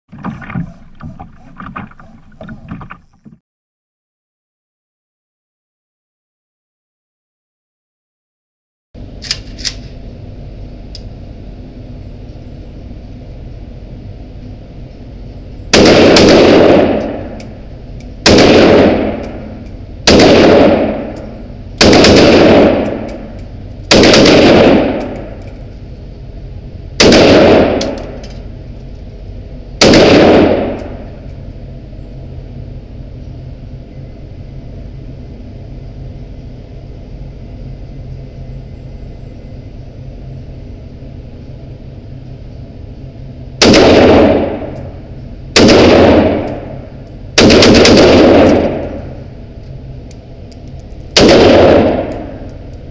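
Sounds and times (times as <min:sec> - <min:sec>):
rifle shots echoing indoors: 0:15.7 - 0:17.4, 0:18.2 - 0:21.2, 0:21.8 - 0:25.4, 0:27.0 - 0:28.3, 0:29.8 - 0:31.1, 0:43.6 - 0:45.0, 0:45.6 - 0:49.2, 0:51.2 - 0:52.6.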